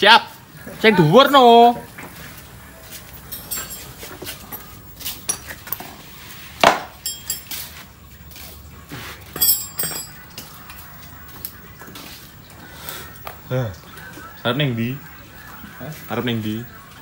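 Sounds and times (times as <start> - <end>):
metal tools clinking and knocking: 3.2 - 5.9, 6.6 - 7.8, 9.3 - 10.3.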